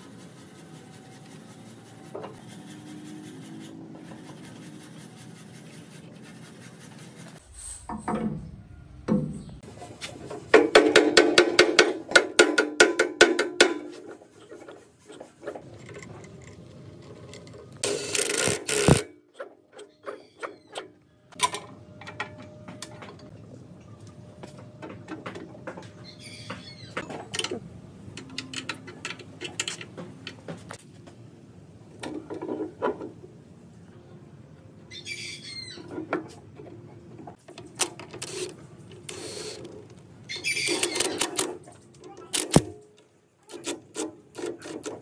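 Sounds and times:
wrench ratcheting: 15.7s - 19.0s.

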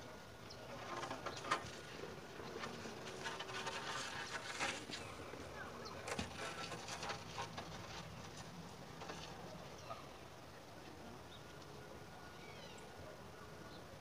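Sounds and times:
concrete dragged over gritty ground: 0.7s - 9.4s.

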